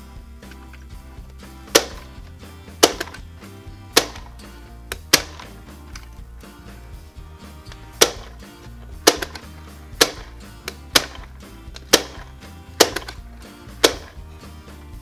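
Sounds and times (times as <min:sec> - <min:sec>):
background music: 0:00.0 - 0:15.0
toy popcorn maker clacking: 0:01.6 - 0:03.3, 0:03.9 - 0:06.2, 0:07.7 - 0:14.2.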